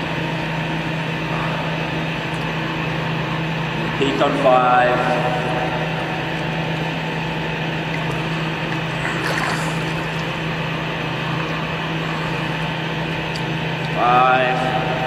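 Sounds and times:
pool machinery hum: 0.0s - 15.0s
water washing: 7.9s - 10.6s.

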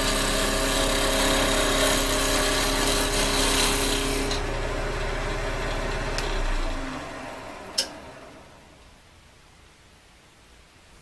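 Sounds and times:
gouge cutting wood: 0.0s - 4.5s
lathe motor hum: 0.0s - 8.8s.

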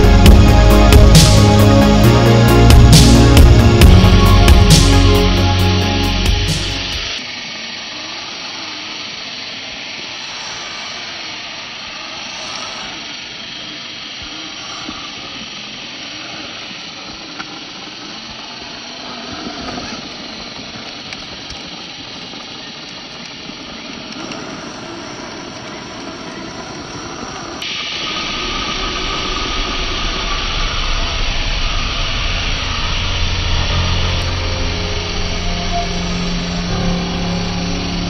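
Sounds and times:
low hum: 0.0s - 7.2s, 22.9s - 38.0s
electric motor and gears whirring: 0.0s - 38.0s.

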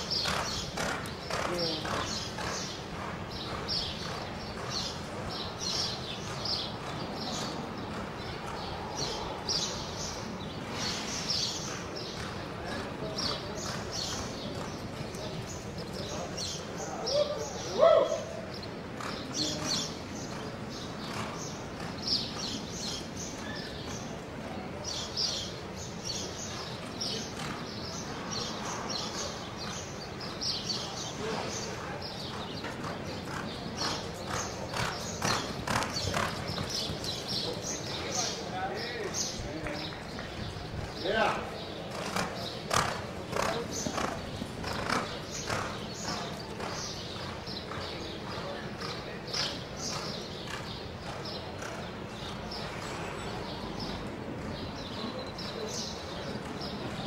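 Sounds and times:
horse hooves on dirt: 0.0s - 16.6s, 26.1s - 53.2s
small birds chirping: 0.0s - 57.0s.

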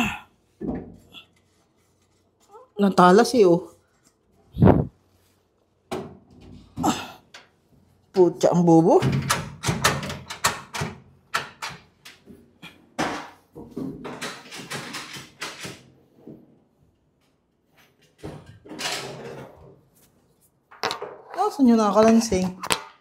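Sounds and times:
metal drawers knocking and clattering: 9.0s - 12.0s, 13.0s - 16.0s, 18.1s - 19.7s.

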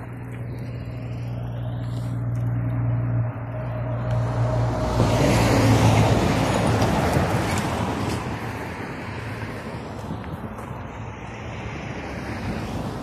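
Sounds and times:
tyre and road noise: 0.0s - 13.0s
vehicle engine hum: 0.0s - 13.0s.

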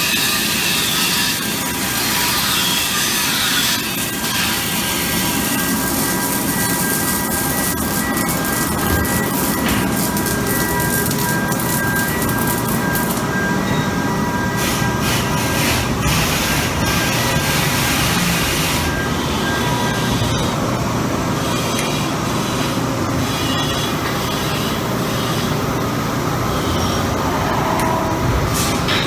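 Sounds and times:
welding arc hissing and crackling: 0.0s - 13.4s, 14.5s - 20.6s
machinery drone: 0.0s - 29.0s.

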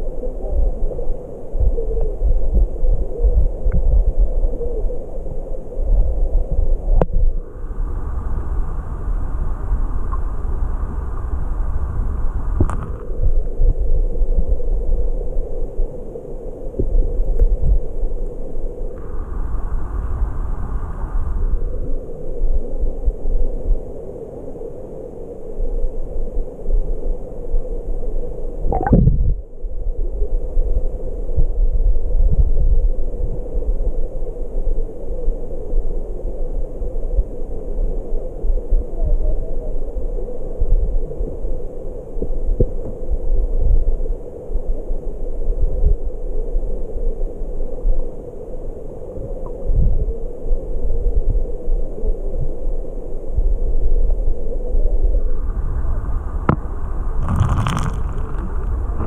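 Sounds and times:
muffled underwater stream flow: 0.0s - 59.0s
muffled underwater stream rushing: 28.6s - 29.5s, 54.8s - 59.0s
soft low thumps: 28.7s - 29.4s.

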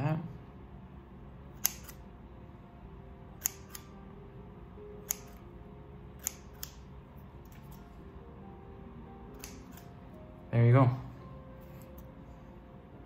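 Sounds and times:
scissors snipping hair: 1.6s - 2.0s, 3.4s - 4.0s, 5.0s - 5.4s, 6.2s - 6.8s, 9.3s - 9.9s.

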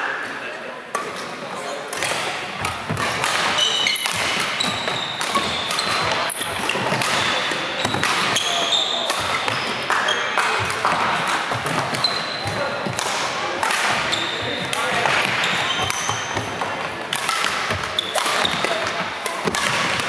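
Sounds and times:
rackets hitting shuttlecock: 0.9s - 20.0s
sneakers squeaking on wooden floor: 2.9s - 10.6s, 11.6s - 12.9s, 14.0s - 16.6s, 17.7s - 18.9s.

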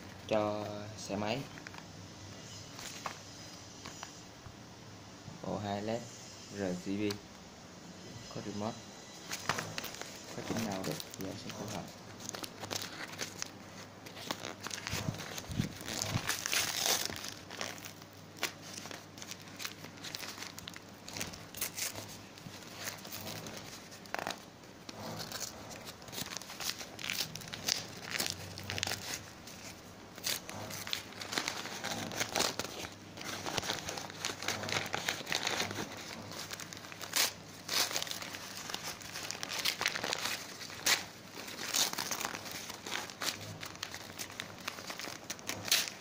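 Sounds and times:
plastic packaging crinkling: 9.2s - 46.0s.

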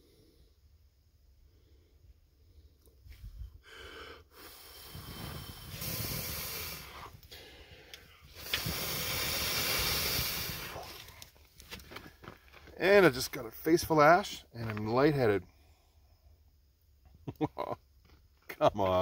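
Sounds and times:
person blowing on kindling: 3.1s - 11.4s.

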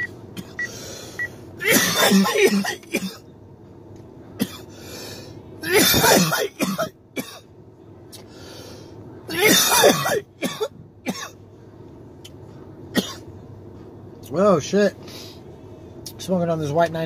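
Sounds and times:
man coughing hard: 1.6s - 3.2s, 4.4s - 4.7s, 5.6s - 7.4s, 9.3s - 11.4s, 12.9s - 13.2s.

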